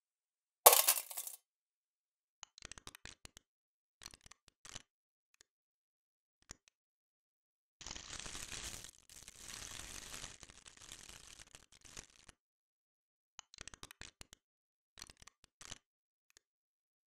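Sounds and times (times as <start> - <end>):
crackle of crumpling sheet: 7.8 - 12.4.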